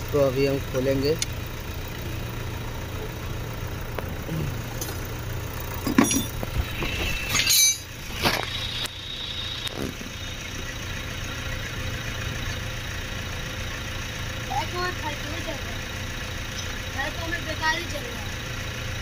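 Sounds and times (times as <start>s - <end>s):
steady low hum: 0.0s - 14.9s
spanner clinking on metal nut: 4.8s - 5.2s, 5.8s - 6.5s, 7.2s - 7.9s.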